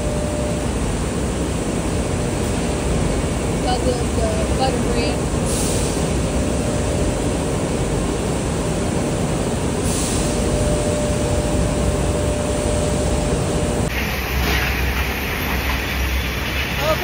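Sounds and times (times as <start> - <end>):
thin constant machine whine: 0.0 - 17.0
industrial machinery din: 2.0 - 17.0.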